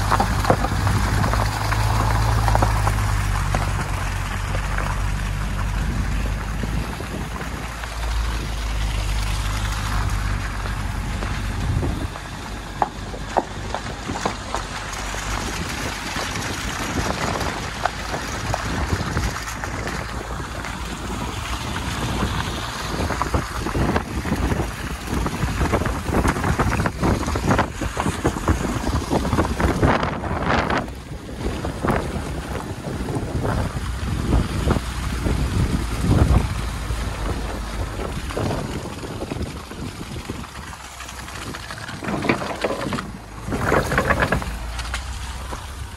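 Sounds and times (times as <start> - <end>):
knocks and ticks against bodywork: 0.0 - 8.2, 9.0 - 32.6, 35.8 - 45.9
wind rushing over microphone: 0.0 - 10.2, 10.9 - 12.4, 15.1 - 40.7
low engine hum: 0.0 - 45.9
tyre noise: 40.2 - 45.9.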